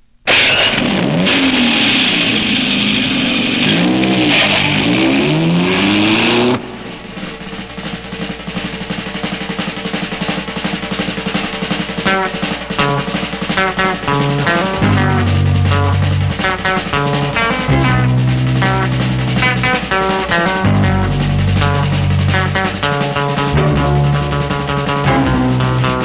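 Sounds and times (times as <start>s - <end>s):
quiet steady sound: 0.0s - 1.0s
drag racing engine revving: 0.3s - 26.0s
loud rushing hiss: 0.3s - 26.0s.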